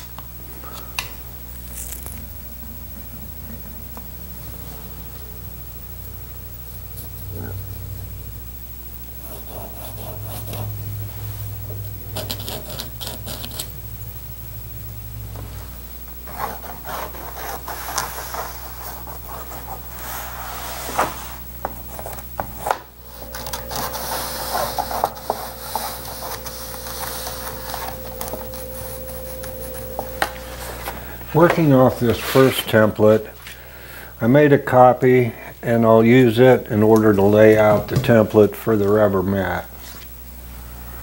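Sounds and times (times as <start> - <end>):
pencil scratching on paper: 9.2 - 10.8, 12.2 - 13.7, 16.3 - 22.2.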